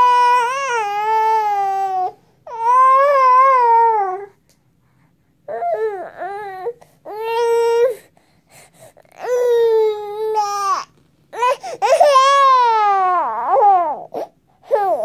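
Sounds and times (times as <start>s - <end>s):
baby crying: 0.0s - 4.3s, 9.2s - 15.0s.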